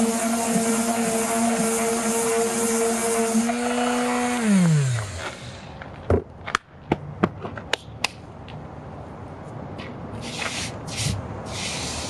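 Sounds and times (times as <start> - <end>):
orbital sander running: 0.0 - 5.7
sander winding down: 0.0 - 5.7.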